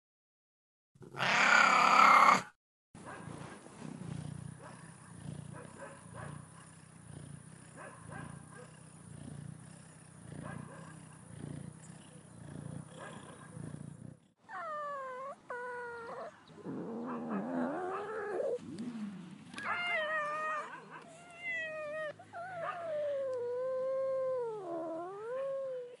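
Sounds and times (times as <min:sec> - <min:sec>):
cat meowing: 0:01.1 - 0:02.5, 0:19.6 - 0:25.8
cat yowling: 0:01.1 - 0:02.5, 0:19.6 - 0:26.0
cat purring: 0:03.3 - 0:26.0.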